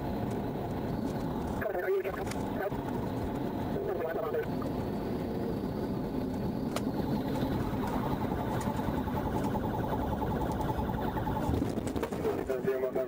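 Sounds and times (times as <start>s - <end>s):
car road and engine noise: 0.0s - 13.0s
rapidly pulsing electronic tone: 0.1s - 13.0s.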